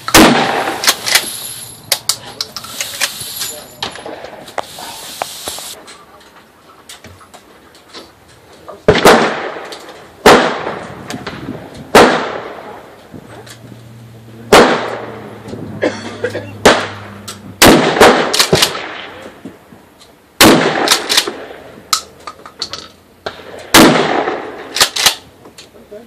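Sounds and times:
shotgun blasts with echo: 0.0s - 1.0s, 8.9s - 12.8s, 14.5s - 15.3s, 16.6s - 19.2s, 20.4s - 21.7s, 23.3s - 25.0s.

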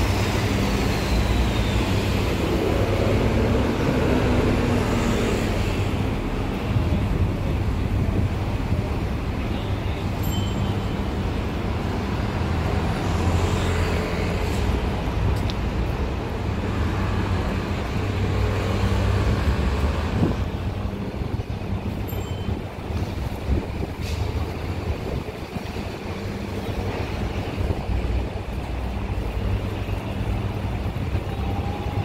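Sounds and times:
vehicle engines running: 0.0s - 32.0s.

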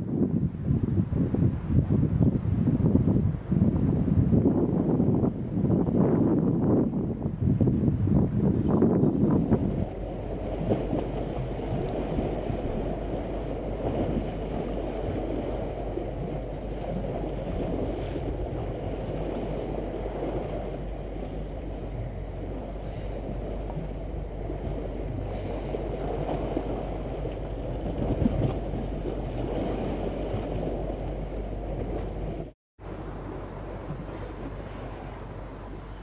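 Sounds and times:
wind rumble on microphone: 0.0s - 36.0s.

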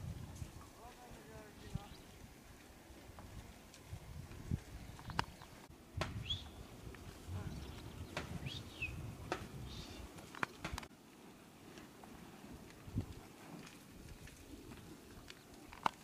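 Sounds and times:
bird chirps: 6.2s - 6.6s, 7.4s - 9.0s
cattle cropping grass: 11.6s - 16.0s.

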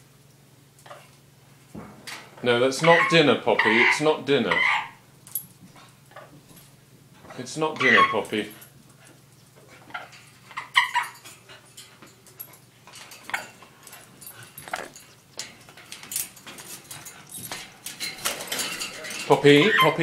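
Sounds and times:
paws tapping wire cage: 0.3s - 20.0s
dog whining: 2.8s - 5.0s, 7.8s - 8.3s, 9.8s - 11.4s, 19.5s - 20.0s.

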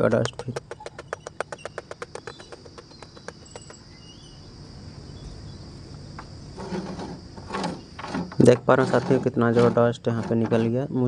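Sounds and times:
bird chirps: 0.0s - 6.2s
high insect buzz: 0.0s - 11.0s
stick knocking on metal mesh filter: 0.2s - 3.8s.

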